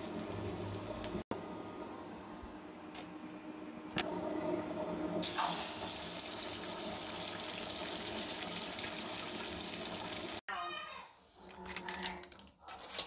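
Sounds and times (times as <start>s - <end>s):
eggs sizzling in a pan: 0.0s - 1.2s, 5.2s - 10.4s.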